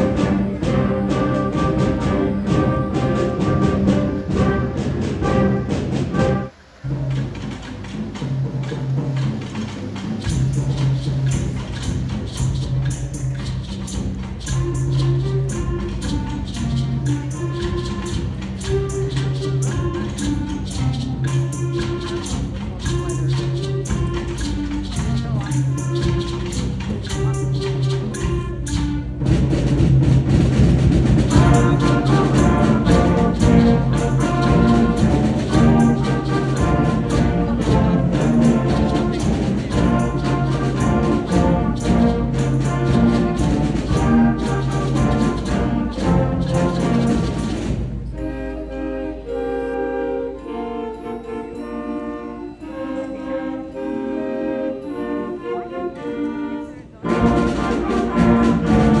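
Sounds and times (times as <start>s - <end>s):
brass-led orchestral music: 0.0s - 59.0s.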